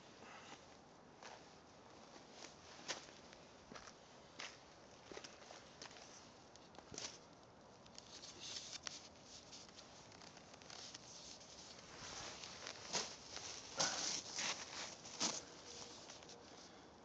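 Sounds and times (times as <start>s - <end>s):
footsteps crunching on gravel: 11.8s - 16.0s.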